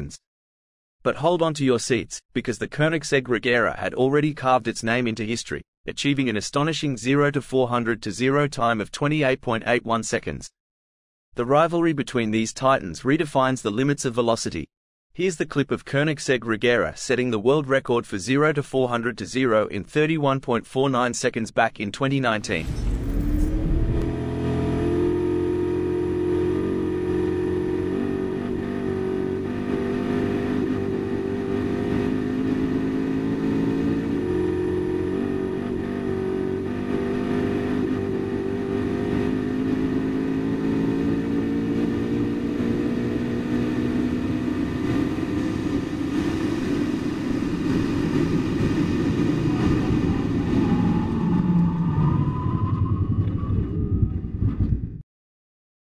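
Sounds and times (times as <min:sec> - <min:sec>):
car engine at full throttle: 0:22.4 - 0:52.4.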